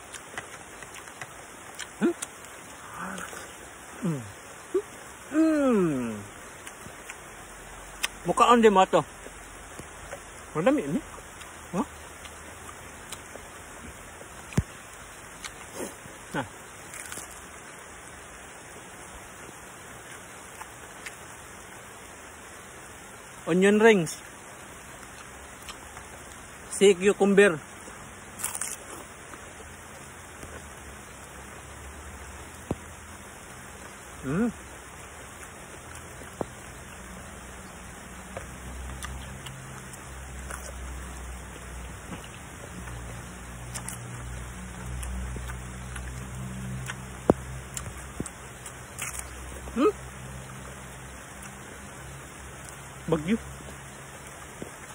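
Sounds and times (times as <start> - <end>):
sharp chewing clicks: 0.0 - 3.6, 7.9 - 17.5, 28.4 - 29.5, 37.6 - 49.8
rain hissing: 0.0 - 54.9.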